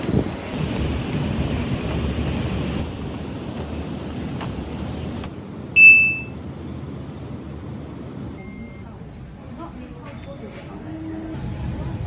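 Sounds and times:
city noise: 0:00.0 - 0:12.0
wind: 0:00.0 - 0:12.0
short electronic beep: 0:05.8 - 0:06.3.

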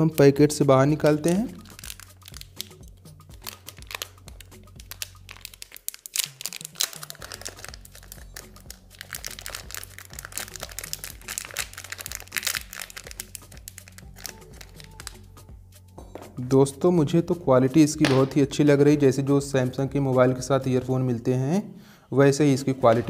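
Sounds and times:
background music: 0:00.0 - 0:23.0
plastic packet crinkling: 0:01.3 - 0:15.2.

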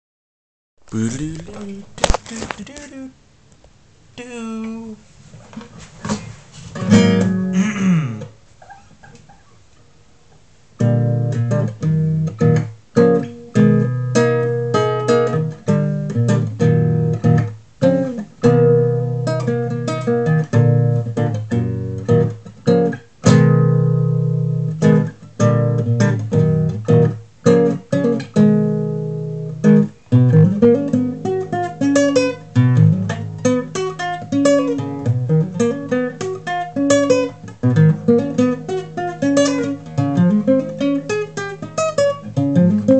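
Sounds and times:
classical guitar fingerstyle: 0:05.6 - 0:09.6, 0:10.8 - 0:42.9.

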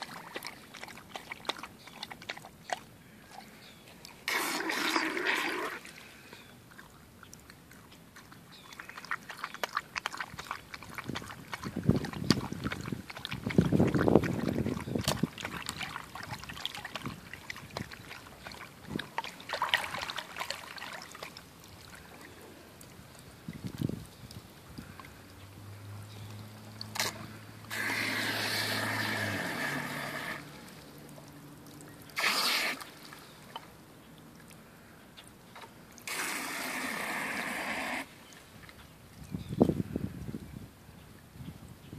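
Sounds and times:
dog lapping water: 0:00.0 - 0:34.8, 0:35.5 - 0:38.9
hose water running into bowl: 0:04.1 - 0:06.0, 0:08.8 - 0:22.0, 0:26.5 - 0:33.2, 0:36.0 - 0:38.1.

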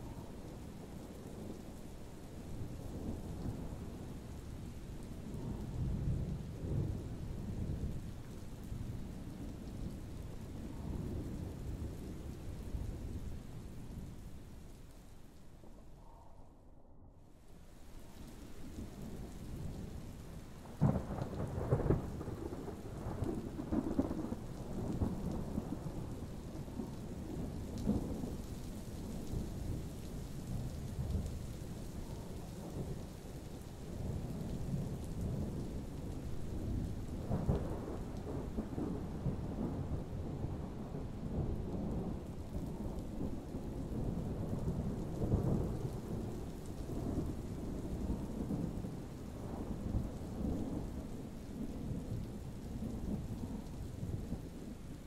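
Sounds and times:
steady rain: 0:00.0 - 0:16.3, 0:17.2 - 0:55.0
thunder rumbling: 0:18.4 - 0:55.0.

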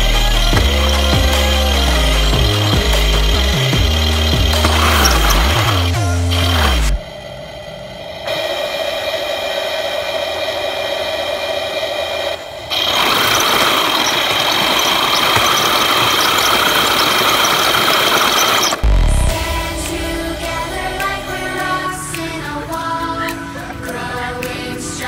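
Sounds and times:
toy tank electronic engine sound: 0:00.0 - 0:07.0, 0:08.3 - 0:25.0
toy tank motors and tracks: 0:00.0 - 0:07.0, 0:08.3 - 0:18.8.

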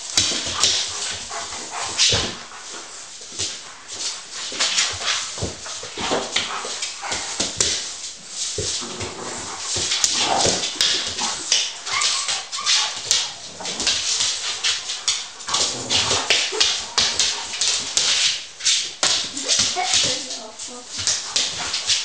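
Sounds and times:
dogs play-fighting: 0:00.0 - 0:22.0
paws scuffling on a hard floor: 0:00.0 - 0:22.0
dog high cries: 0:11.8 - 0:13.1.

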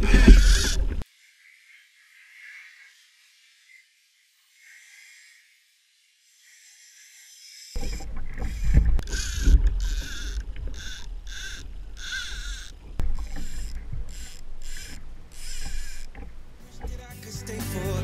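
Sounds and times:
water sloshing against hull: 0:07.8 - 0:17.0.

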